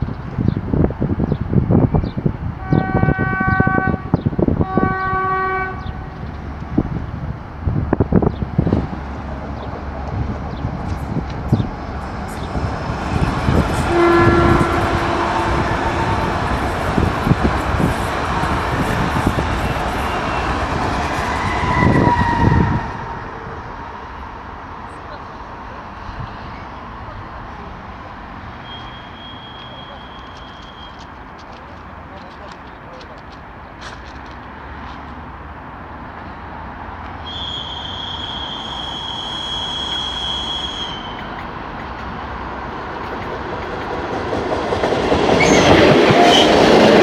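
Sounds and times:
wind buffeting the microphone: 0.0 - 23.9, 41.2 - 47.0
train rolling rumble: 0.0 - 47.0
train horn blasts: 2.6 - 6.2, 13.1 - 23.2, 37.3 - 41.2, 45.4 - 47.0.

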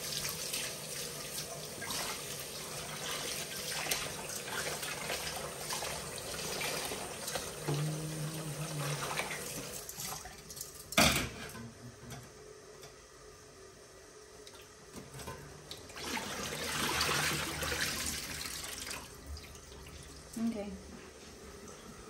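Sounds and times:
water pouring into sink: 0.0 - 11.0, 15.7 - 20.4.

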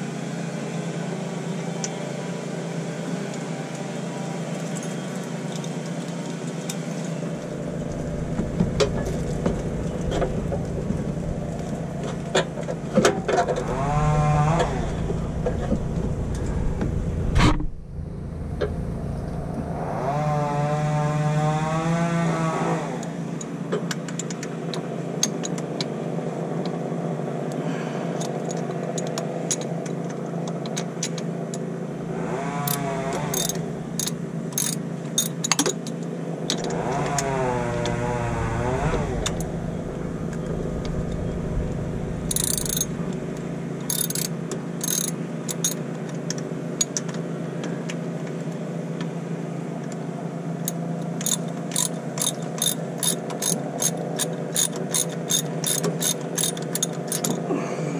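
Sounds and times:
low machine hum: 0.0 - 23.7, 24.5 - 35.3, 35.9 - 57.9
pitch-bending motor sound: 13.3 - 23.0, 32.0 - 34.2, 36.6 - 44.3
socket ratchet clicking: 32.7 - 35.7, 42.3 - 42.9, 43.9 - 45.8, 51.2 - 57.3.

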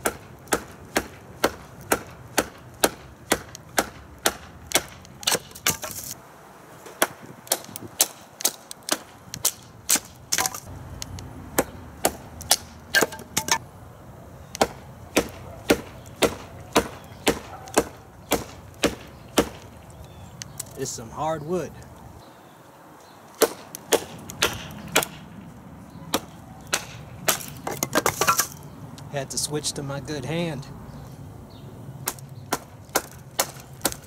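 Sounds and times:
knife chopping wood: 0.0 - 6.2, 6.8 - 10.7, 11.6 - 13.6, 14.5 - 19.7, 23.4 - 25.2, 26.1 - 28.5, 32.0 - 34.0.

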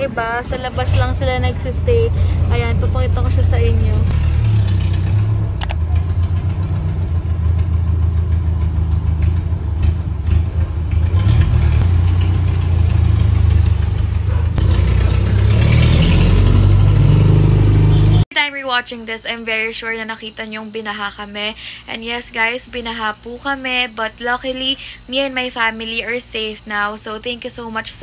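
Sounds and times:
engine humming: 0.0 - 18.2
sharp click: 5.6 - 6.4.

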